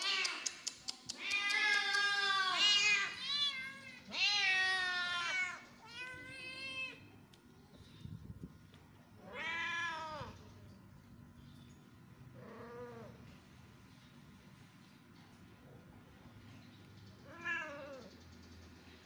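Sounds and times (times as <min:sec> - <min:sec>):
cats meowing: 0:00.0 - 0:07.1, 0:09.2 - 0:10.4, 0:17.2 - 0:18.1.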